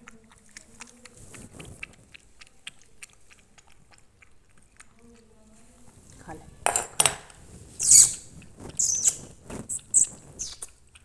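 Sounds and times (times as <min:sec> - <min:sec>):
cat lapping milk: 0:00.0 - 0:06.6, 0:07.3 - 0:11.0.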